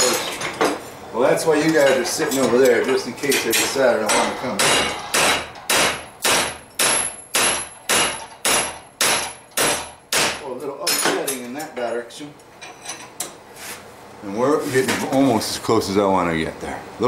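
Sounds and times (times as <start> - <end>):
hammer striking hot steel spike: 4.1 - 10.4.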